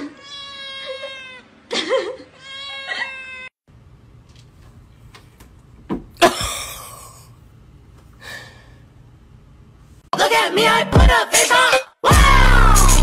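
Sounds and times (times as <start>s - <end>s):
rap music: 10.2s - 13.0s.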